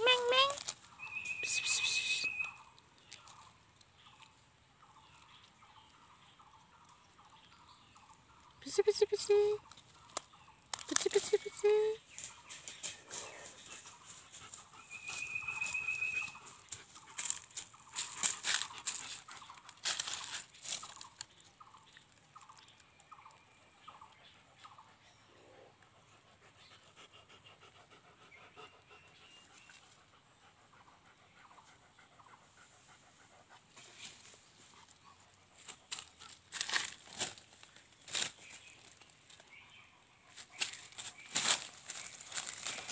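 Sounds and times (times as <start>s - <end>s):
dog panting: 12.9s - 19.7s, 25.8s - 34.0s
rustling and brushing: 35.6s - 39.5s, 40.3s - 42.9s.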